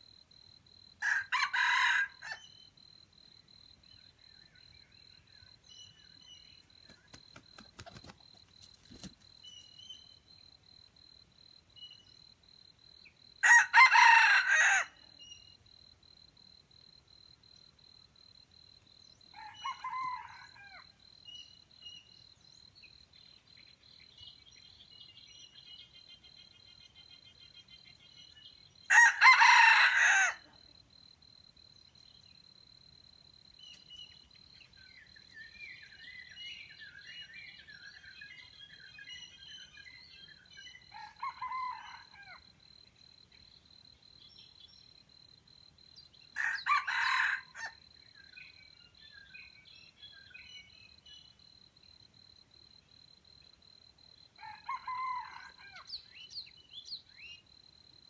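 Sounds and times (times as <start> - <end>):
cricket trill: 0.0 - 58.0
rooster crowing: 1.0 - 2.5, 13.4 - 15.0, 19.3 - 20.9, 28.9 - 30.6, 40.9 - 42.4, 46.4 - 47.8, 54.4 - 55.9.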